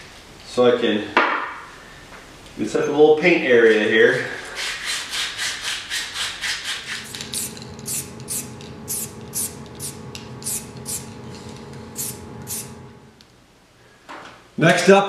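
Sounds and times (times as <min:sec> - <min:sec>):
spray can hissing: 0:06.7 - 0:13.2
spray can rattling: 0:06.8 - 0:12.8
faint steady hum: 0:06.9 - 0:14.2.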